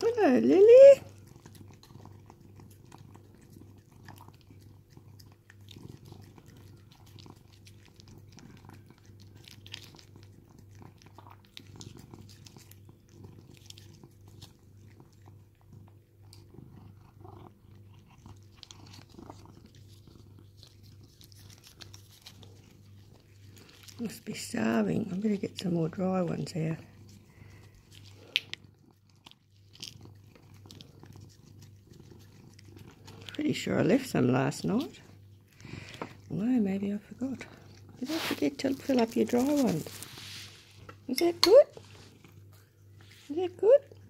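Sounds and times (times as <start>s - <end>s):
cat licking: 0.0s - 41.1s, 41.7s - 44.0s.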